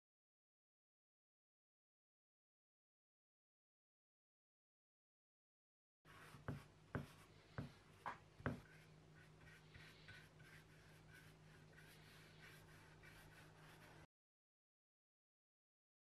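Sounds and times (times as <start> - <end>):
low steady hum: 6.1 - 14.1.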